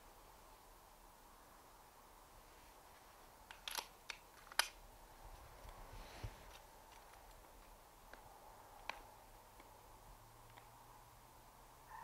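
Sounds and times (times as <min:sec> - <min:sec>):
sharp mechanical clicks: 0:03.5 - 0:04.8.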